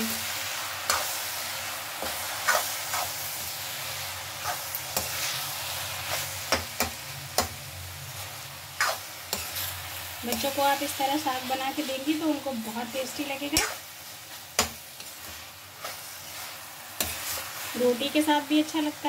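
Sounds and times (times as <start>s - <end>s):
greens sizzling in a pan: 0.0s - 19.0s
spatula scraping a metal pan: 8.8s - 9.7s, 14.6s - 17.7s.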